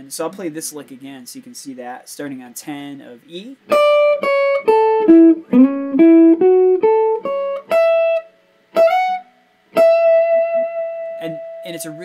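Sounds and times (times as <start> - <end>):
electric guitar melody: 3.7 - 12.0.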